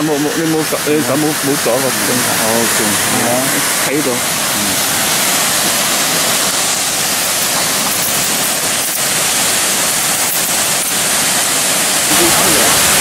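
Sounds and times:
waterfall rushing into pools: 0:00.0 - 0:13.0.

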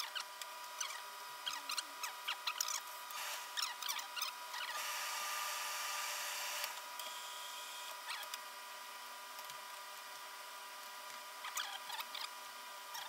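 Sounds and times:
faint steady hum: 0:00.0 - 0:13.0
steam iron hissing: 0:03.1 - 0:03.6, 0:04.8 - 0:06.8.

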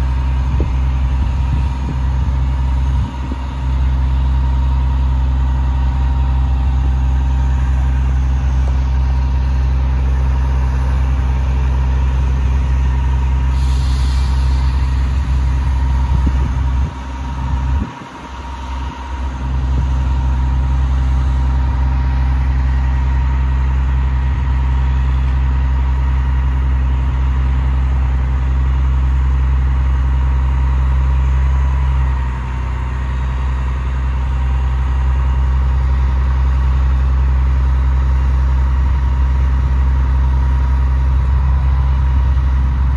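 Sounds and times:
diesel truck engine running: 0:00.0 - 0:42.9
steady engine whine: 0:00.0 - 0:42.9
short hiss: 0:13.5 - 0:15.9.

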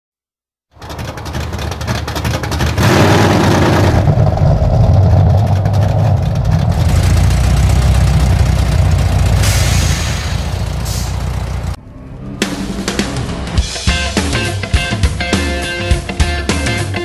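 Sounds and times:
engine revving deep rumble: 0:00.8 - 0:13.8.

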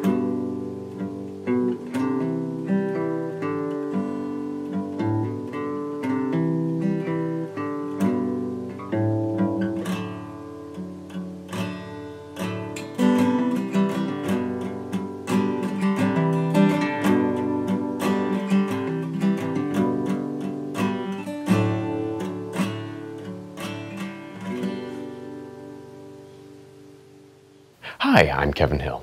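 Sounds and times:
acoustic guitar music: 0:00.0 - 0:28.9.

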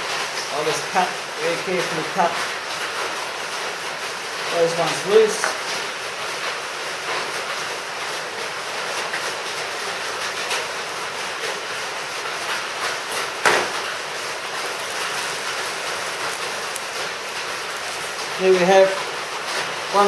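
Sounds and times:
steady background hiss: 0:00.0 - 0:20.0
plastic film crinkling: 0:13.6 - 0:20.0.

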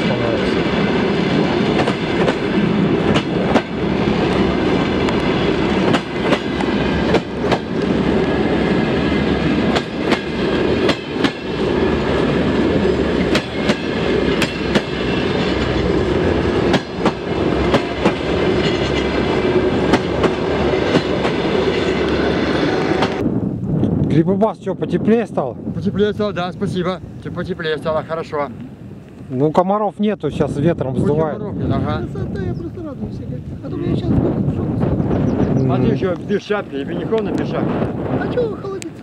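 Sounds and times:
wheels clacking over rail joints: 0:00.0 - 0:23.2
train carriages rumbling: 0:00.0 - 0:23.6, 0:24.8 - 0:39.0.

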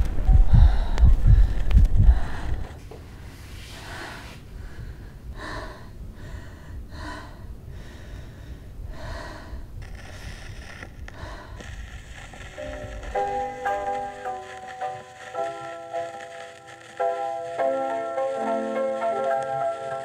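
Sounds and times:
faint low rumble: 0:00.0 - 0:17.6
woman gasping breaths: 0:00.4 - 0:12.6.

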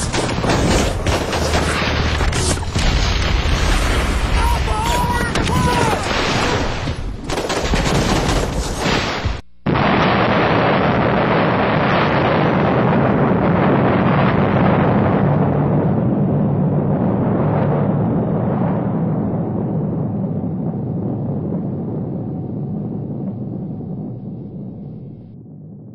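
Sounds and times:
dense gunfire: 0:00.0 - 0:04.4, 0:06.0 - 0:17.8.

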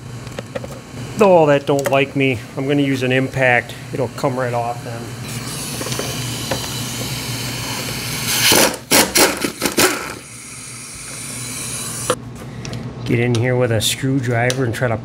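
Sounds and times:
impact wrench hammering: 0:08.4 - 0:10.2.

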